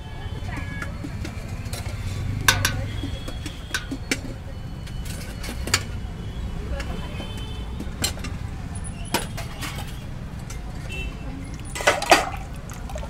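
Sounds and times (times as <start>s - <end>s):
ladle clinking against pots: 0.6s - 5.9s, 11.5s - 13.0s.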